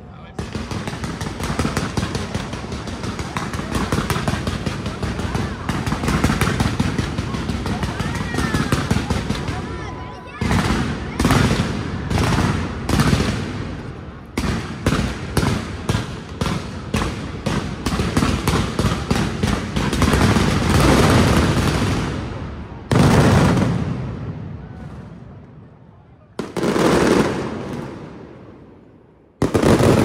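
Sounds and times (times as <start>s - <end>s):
firework bangs: 0.3s - 25.7s, 26.3s - 30.0s
firework crackle: 0.4s - 24.1s.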